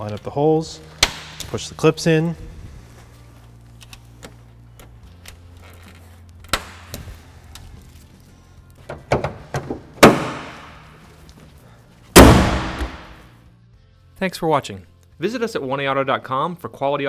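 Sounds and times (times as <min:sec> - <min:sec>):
car hood slamming shut: 0:09.0 - 0:10.7, 0:12.2 - 0:13.1.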